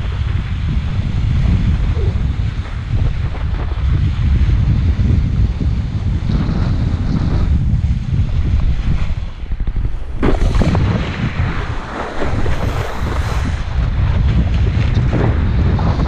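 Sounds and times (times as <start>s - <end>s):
wind buffeting microphone: 0.0s - 16.0s
rushing water and spray: 5.8s - 16.0s.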